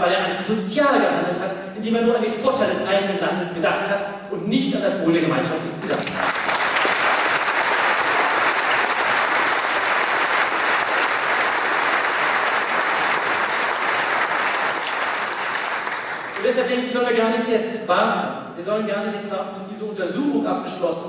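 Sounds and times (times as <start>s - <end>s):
crowd applauding: 5.8s - 16.6s.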